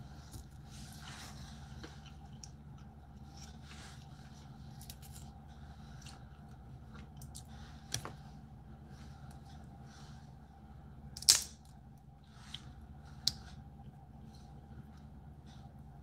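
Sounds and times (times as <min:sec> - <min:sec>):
steady low hum: 0:00.0 - 0:16.0
crab shell cracking: 0:11.2 - 0:11.7.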